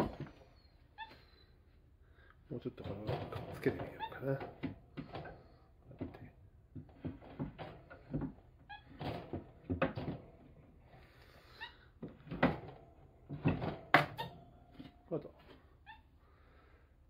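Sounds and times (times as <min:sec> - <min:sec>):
wire cage rattling: 0:02.7 - 0:05.4.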